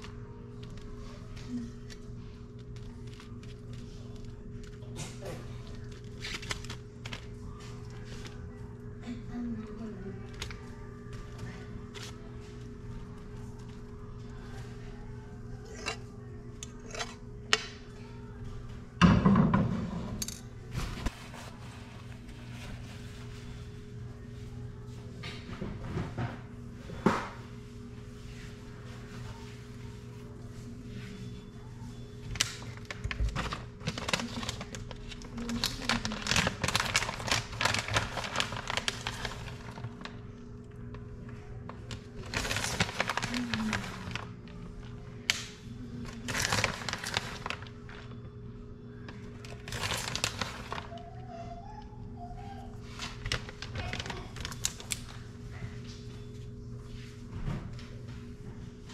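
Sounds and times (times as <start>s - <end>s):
plastic bag crinkling: 0.0s - 8.6s, 32.3s - 48.2s, 49.0s - 51.2s, 53.0s - 55.2s.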